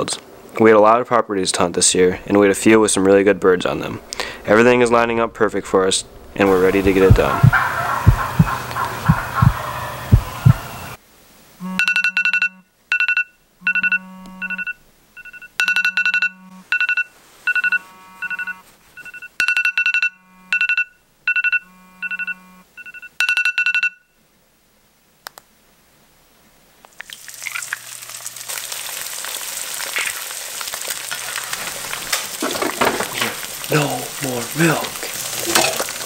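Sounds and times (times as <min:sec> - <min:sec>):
low buzz: 0:11.6 - 0:12.7, 0:13.6 - 0:16.7, 0:17.6 - 0:18.6, 0:20.0 - 0:20.7, 0:21.6 - 0:22.7
phone alarm beeping: 0:11.6 - 0:24.1
eggs sizzling in a frying pan: 0:26.9 - 0:36.0.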